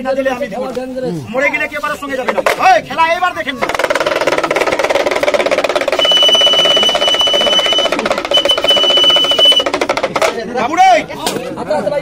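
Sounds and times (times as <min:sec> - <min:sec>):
hand drum rattling roll: 0:03.4 - 0:10.8
steady high whistle: 0:05.9 - 0:09.7.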